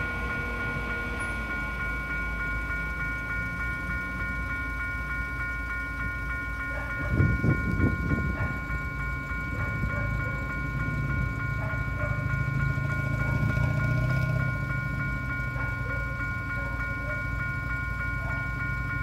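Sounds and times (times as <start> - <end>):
level crossing warning bell: 0.0 - 19.0.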